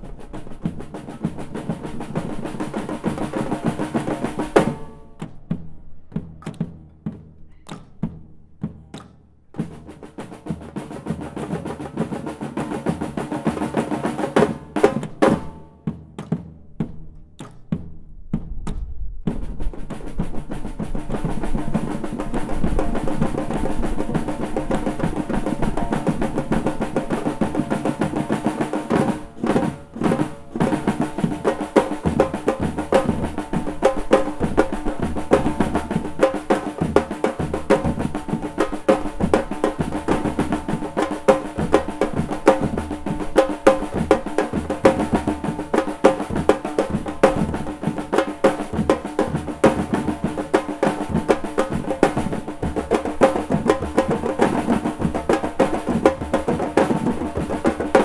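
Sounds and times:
snare drums playing funk rhythm: 0:00.0 - 0:58.0
deep bass drums: 0:15.9 - 0:26.5.

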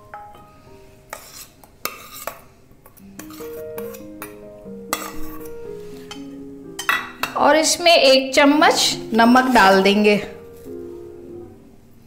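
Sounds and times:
soft background music: 0:00.0 - 0:12.0
steel spoon scraping bowl: 0:01.1 - 0:02.4, 0:03.0 - 0:04.2, 0:04.9 - 0:06.3.

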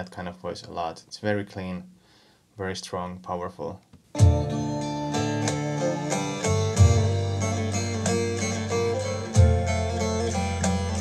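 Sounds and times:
long-necked lute plucked notes: 0:04.2 - 0:11.0
low sustained bass: 0:04.2 - 0:11.0.

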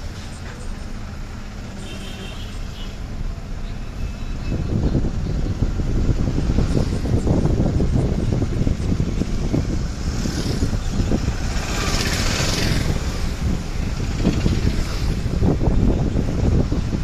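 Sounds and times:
vehicle rumble on road: 0:00.0 - 0:17.0
wind buffeting microphone: 0:04.3 - 0:17.0.

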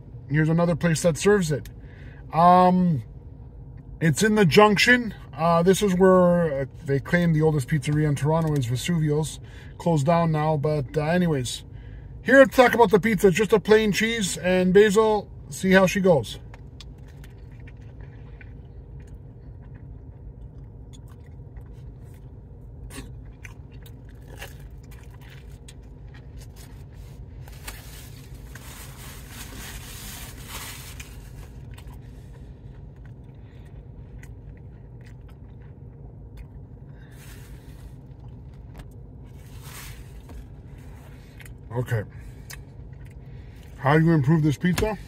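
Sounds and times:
low hum: 0:00.0 - 0:45.0
person chewing crunchy food: 0:16.6 - 0:28.7, 0:30.9 - 0:39.6.

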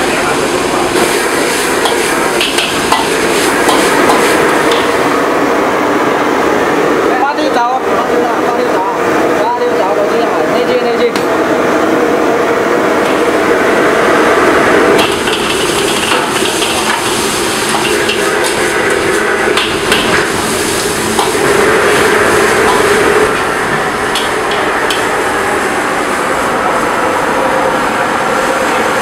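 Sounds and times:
food sizzling: 0:00.8 - 0:05.2, 0:14.2 - 0:25.6
kitchen noise: 0:15.0 - 0:20.3
ladle scraping and knocking wok: 0:15.0 - 0:23.4.

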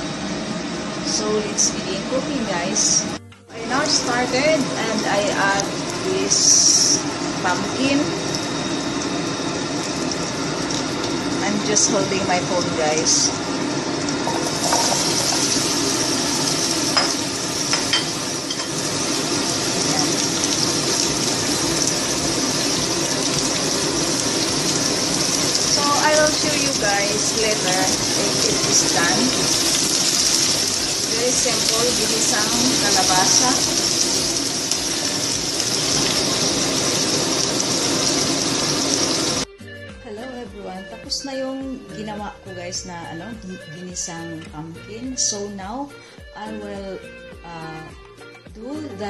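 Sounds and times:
pumpkin sizzling in a frying pan: 0:01.0 - 0:39.5.

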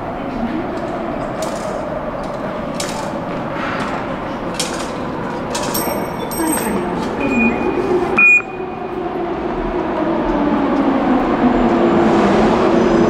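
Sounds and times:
station hall hum: 0:00.0 - 0:13.0.

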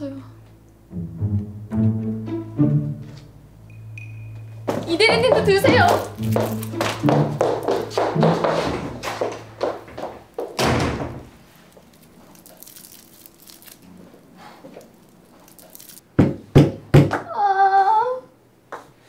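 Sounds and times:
heavy thuds: 0:04.6 - 0:11.5.

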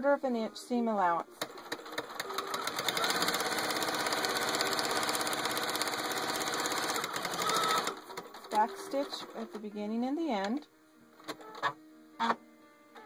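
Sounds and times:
sewing machine stitching: 0:01.4 - 0:09.4.

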